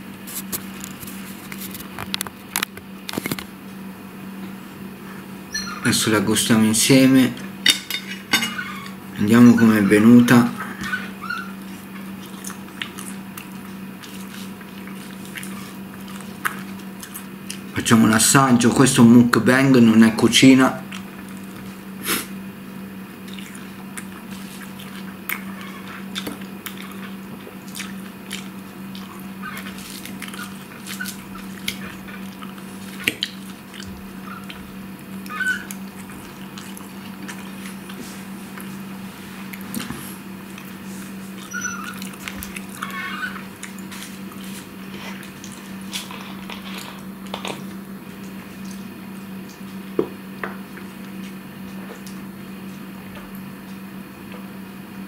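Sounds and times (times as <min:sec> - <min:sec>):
steady low hum: 0:00.0 - 0:55.0
person chewing lettuce: 0:10.6 - 0:17.8, 0:20.8 - 0:22.4, 0:23.1 - 0:52.9.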